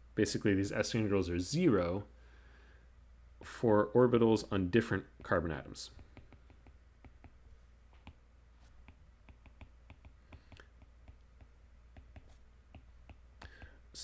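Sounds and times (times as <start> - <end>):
stylus tapping on tablet screen: 5.2 - 13.8.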